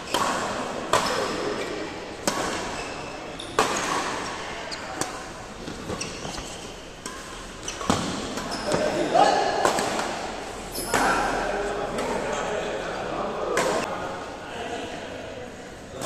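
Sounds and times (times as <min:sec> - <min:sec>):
racquet hitting shuttlecock: 0:00.0 - 0:04.4, 0:05.0 - 0:08.9, 0:09.5 - 0:11.2.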